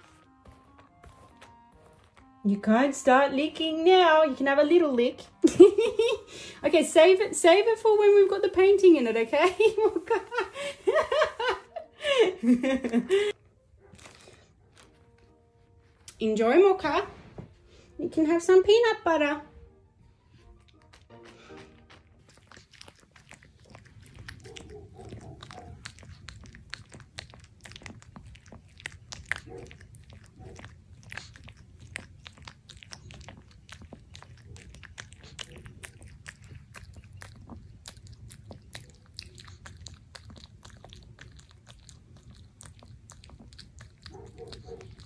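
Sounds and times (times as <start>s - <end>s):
dog licking wetly: 20.6s - 45.0s.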